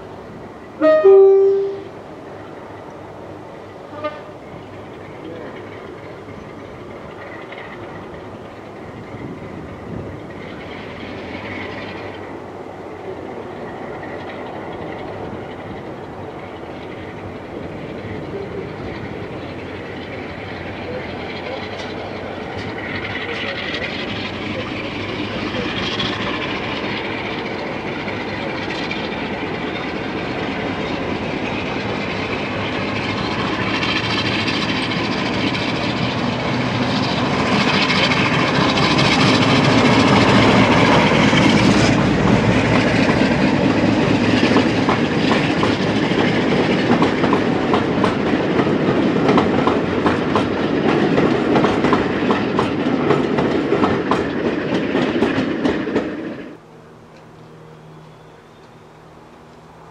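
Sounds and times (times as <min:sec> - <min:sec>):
train passing: 0:00.0 - 0:59.9
wheels clicking over rail joints: 0:13.0 - 0:56.3.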